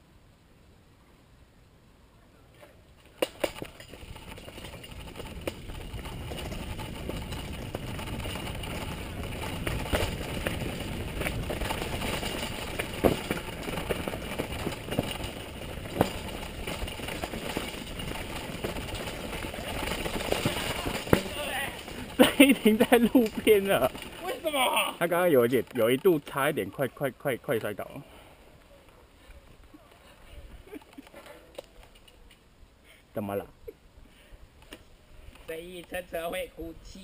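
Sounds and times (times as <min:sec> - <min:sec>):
tyres on dirt and gravel: 0:02.5 - 0:32.5
bike rattling and knocking: 0:03.1 - 0:26.6
wind rushing over microphone: 0:04.0 - 0:19.8.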